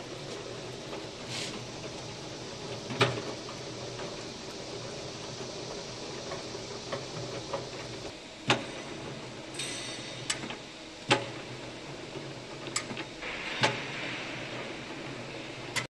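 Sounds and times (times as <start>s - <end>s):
low machine hum: 0.0s - 15.9s
short hiss: 1.3s - 1.6s.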